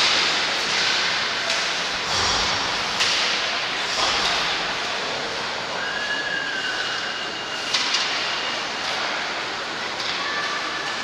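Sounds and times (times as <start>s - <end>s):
hockey sticks and puck clacking: 0.0s - 1.9s, 3.0s - 4.6s, 7.7s - 9.1s.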